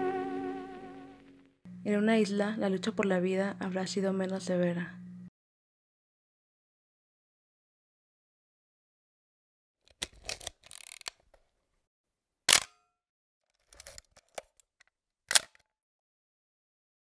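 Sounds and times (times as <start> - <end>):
small sharp clicks: 15.3 - 15.7.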